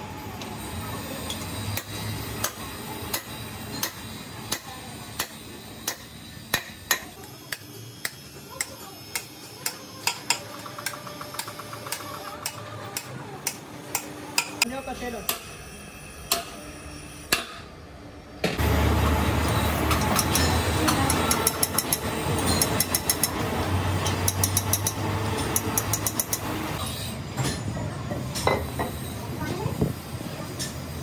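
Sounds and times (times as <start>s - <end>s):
steady machine hum: 10.4s - 26.8s
metal tool tapping engine valves: 24.2s - 26.5s.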